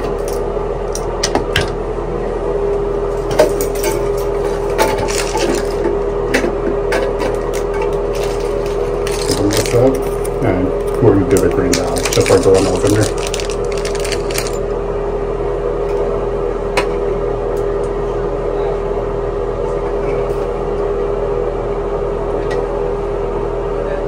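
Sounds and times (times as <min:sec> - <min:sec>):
electrical hum with held tone: 0:00.0 - 0:24.0.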